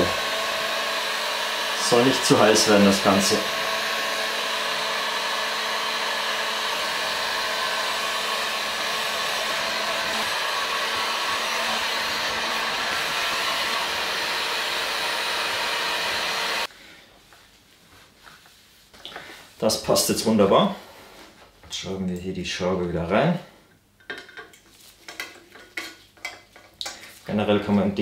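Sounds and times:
heat gun blowing hiss: 0.0 - 16.7.

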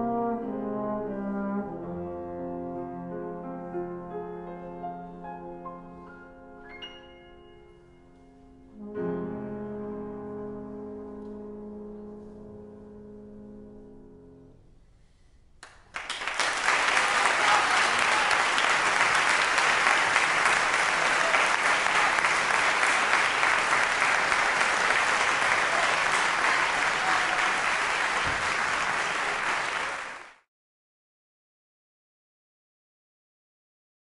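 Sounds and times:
trombone and piano chord: 0.0 - 5.9, 8.7 - 14.6
audience applauding: 15.6 - 30.5.

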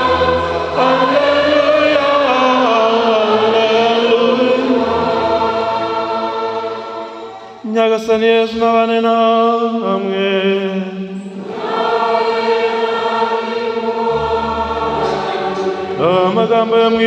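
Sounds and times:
church choir singing: 0.0 - 17.0.

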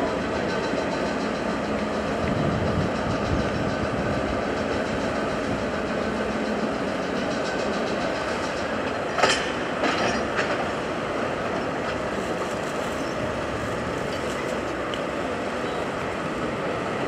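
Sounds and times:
train rumbling past: 0.0 - 17.0
wheels clicking over rail joints: 0.2 - 10.8.

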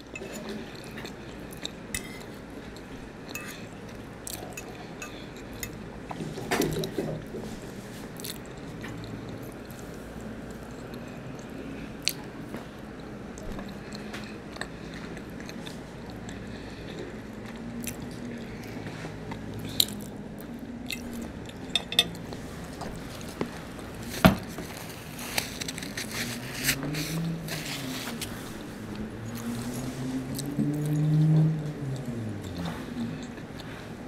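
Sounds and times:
person chewing: 0.2 - 6.1, 8.1 - 12.3, 13.4 - 33.9
fork clinking on plate: 21.7 - 22.2.

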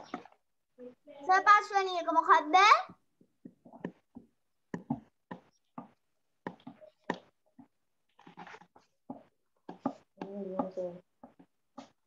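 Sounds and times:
marker pen writing on whiteboard: 3.4 - 12.0.

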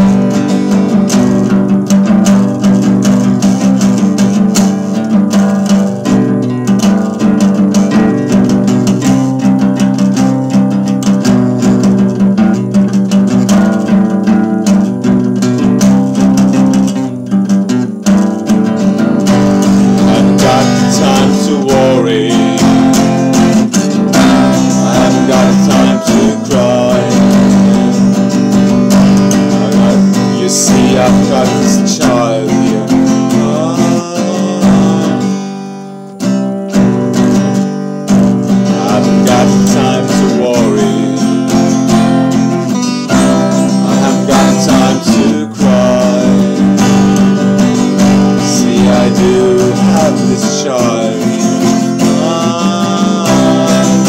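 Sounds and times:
acoustic guitar strumming: 0.0 - 54.0
man singing: 19.3 - 36.1, 38.5 - 54.0.

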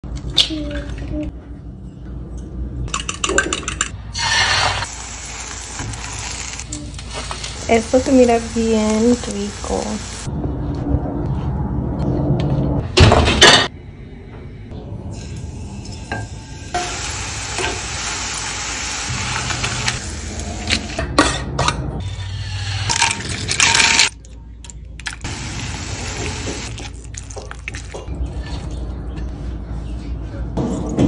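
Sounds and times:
food sizzling in a frying pan: 4.2 - 10.3, 16.8 - 20.2.

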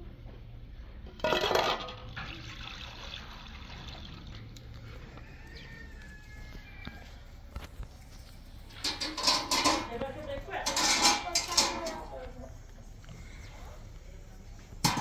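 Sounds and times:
water pouring into metal pot: 1.7 - 4.5.

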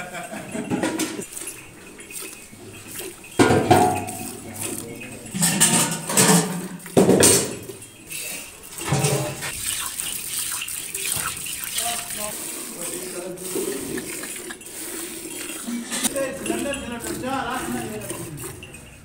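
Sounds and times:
pail bumps and clatters: 0.1 - 7.9, 8.8 - 9.6
milk squirting into a steel pail: 1.2 - 19.0.

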